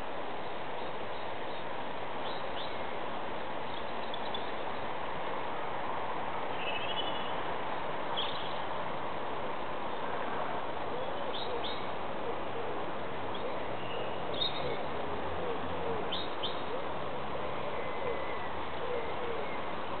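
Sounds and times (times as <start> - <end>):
birds cooing: 10.9 - 20.0
small birds chirping: 13.3 - 14.8.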